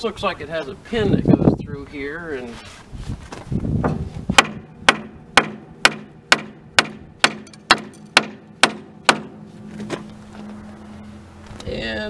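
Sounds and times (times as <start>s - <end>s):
hammer striking steel pin: 4.4s - 9.4s.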